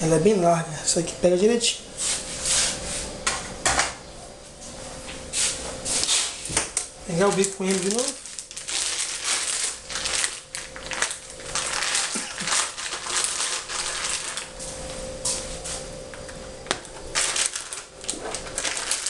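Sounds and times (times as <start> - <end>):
faint hum: 0.0 - 19.0
plastic bag crinkling: 7.1 - 15.0, 16.2 - 19.0.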